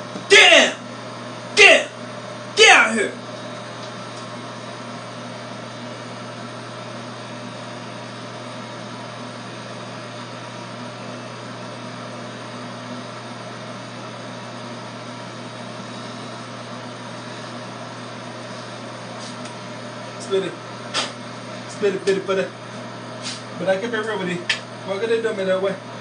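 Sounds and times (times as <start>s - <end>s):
hair clippers buzzing: 18.4s - 25.5s.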